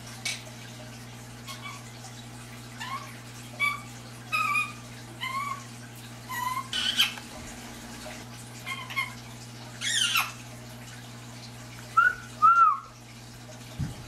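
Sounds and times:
parakeet whining calls: 0:01.5 - 0:01.9, 0:02.8 - 0:05.7, 0:06.3 - 0:07.2, 0:08.6 - 0:09.2, 0:09.8 - 0:10.4.

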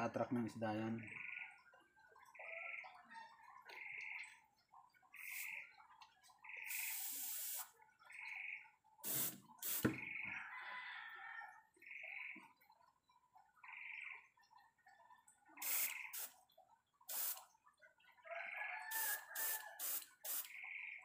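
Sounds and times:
airbrush hissing: 0:06.7 - 0:07.6, 0:09.0 - 0:10.0, 0:15.6 - 0:16.3, 0:17.1 - 0:17.4, 0:19.0 - 0:20.5.

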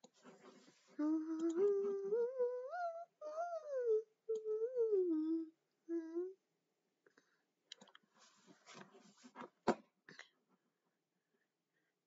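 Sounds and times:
girl humming a tune: 0:01.0 - 0:06.4.

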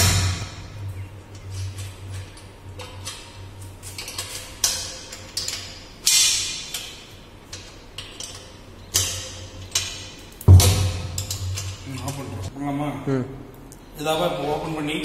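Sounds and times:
sharp metal clanks: 0:00.0 - 0:01.9, 0:08.0 - 0:12.5
spanner clinking on metal bolts: 0:04.0 - 0:12.4.

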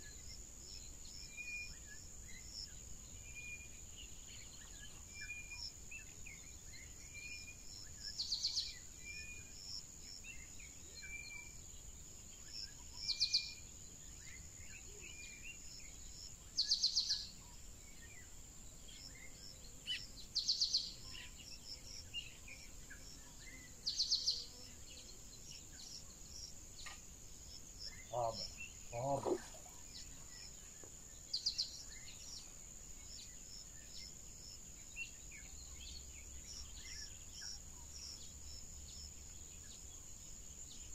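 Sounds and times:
high insect drone: 0:00.0 - 0:40.9.

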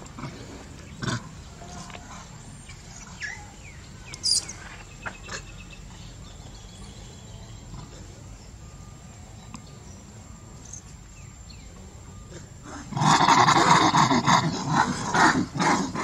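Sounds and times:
steady low background noise: 0:00.0 - 0:16.0
monkeys squeaking and squealing: 0:02.9 - 0:05.6.

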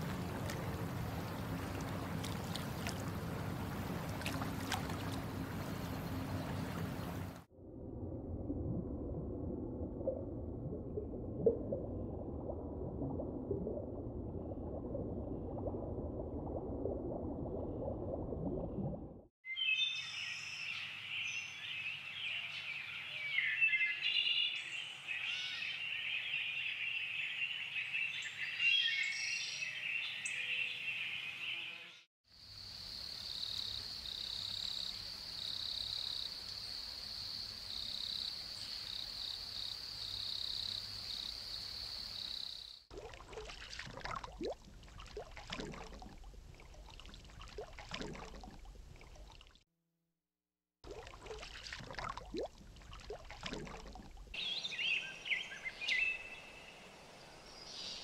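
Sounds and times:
low bubbling water: 0:00.0 - 0:19.3, 0:42.9 - 0:49.6, 0:50.8 - 0:54.6
water splashing and trickling: 0:00.0 - 0:19.3, 0:42.7 - 0:49.6, 0:50.8 - 0:57.6
birds and insects chirping: 0:00.1 - 0:07.5, 0:19.9 - 0:42.8, 0:54.4 - 0:58.0.

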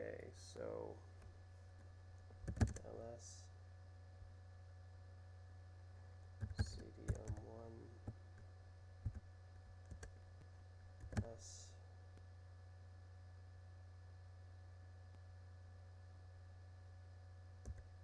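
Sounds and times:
steady low hum: 0:00.0 - 0:18.0
computer keyboard keystrokes: 0:02.4 - 0:02.8, 0:06.4 - 0:08.2, 0:09.0 - 0:09.2, 0:09.9 - 0:10.1, 0:11.0 - 0:11.3, 0:17.6 - 0:17.9.

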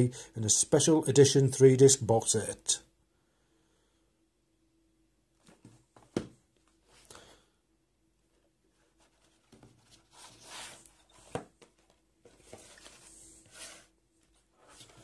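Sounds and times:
box rubbing and sliding on table: 0:08.9 - 0:11.4, 0:12.3 - 0:15.0.

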